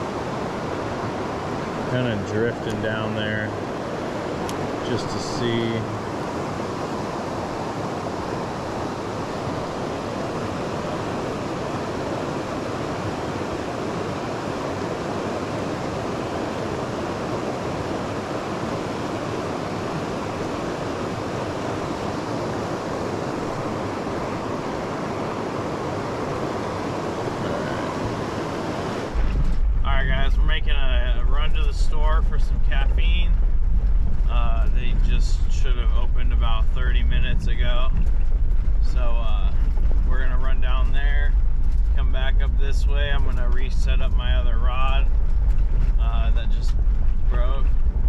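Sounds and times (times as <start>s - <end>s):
river water rushing: 0.0s - 2.2s, 5.9s - 29.2s.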